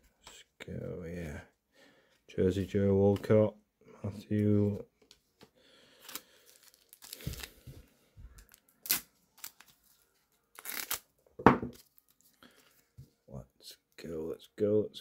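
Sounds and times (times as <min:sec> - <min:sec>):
wrapper crinkling and tearing: 0:06.0 - 0:07.7, 0:08.4 - 0:11.1, 0:11.8 - 0:12.4.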